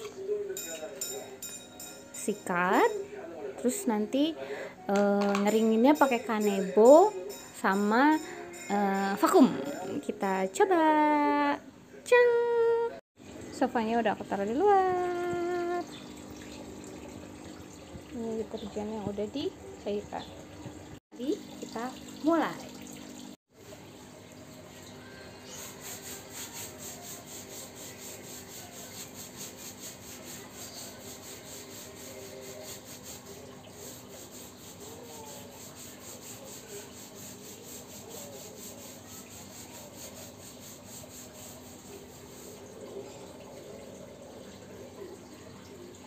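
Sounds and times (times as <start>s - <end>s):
brush scrubbing fabric: 25.5s - 43.0s.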